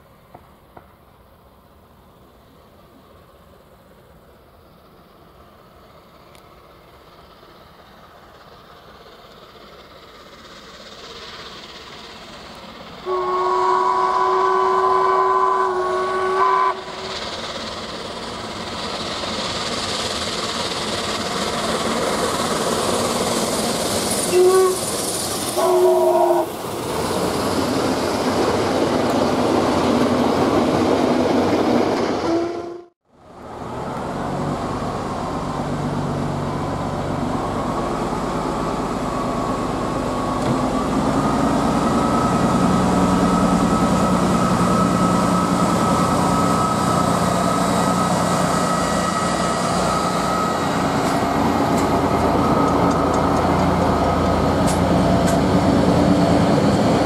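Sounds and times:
steam train running past: 0.0 - 57.0
steam whistle: 13.0 - 17.1, 24.3 - 24.9, 25.6 - 26.6, 32.3 - 32.9.

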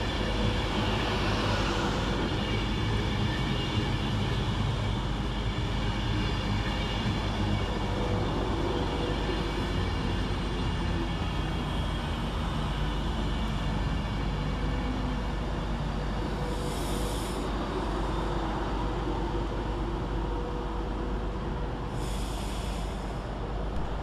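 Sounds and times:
train wheels rumbling on rail: 0.0 - 24.0
low electric hum: 23.6 - 24.0.

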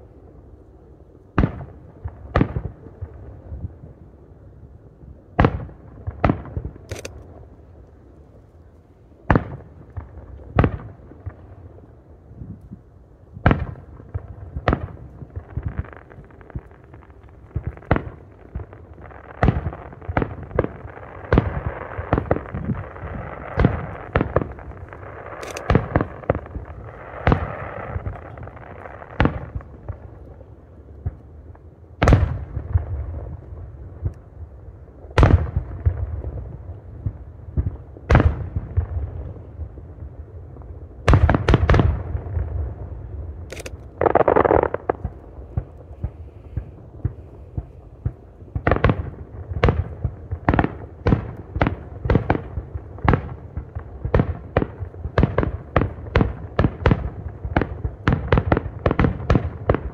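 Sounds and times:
firework shells bursting: 21.3 - 28.5, 43.5 - 48.2.

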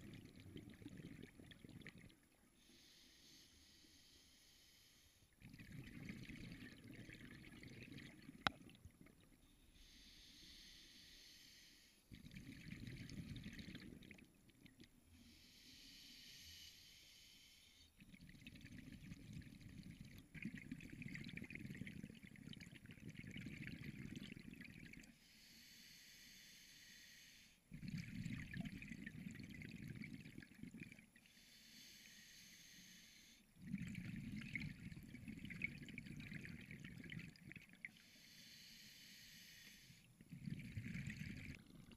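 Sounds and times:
exhaled air bubbling: 0.0 - 2.6, 5.3 - 9.5, 12.1 - 15.1, 18.0 - 25.2, 27.7 - 31.3, 33.5 - 38.0, 40.1 - 41.9
regulator hiss on inhalation: 9.8 - 12.0, 15.2 - 17.8, 25.3 - 27.6, 31.4 - 33.4, 38.0 - 40.1.

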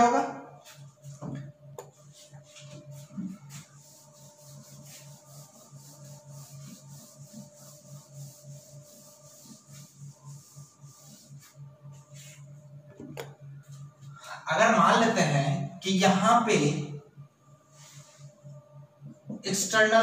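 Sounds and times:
whiteboard duster rubbing: 1.9 - 12.6.

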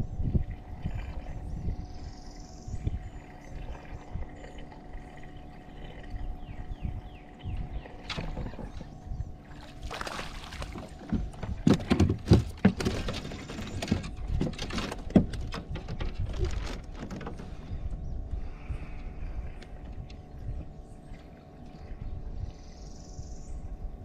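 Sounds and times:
water sloshing and splashing: 7.6 - 17.8
knocks against kayak hull: 10.5 - 13.2.

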